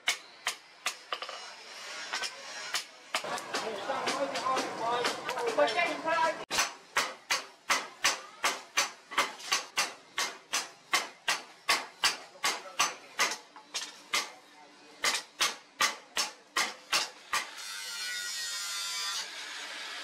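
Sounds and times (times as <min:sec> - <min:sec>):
hammer striking steel blade: 0:06.5 - 0:14.4.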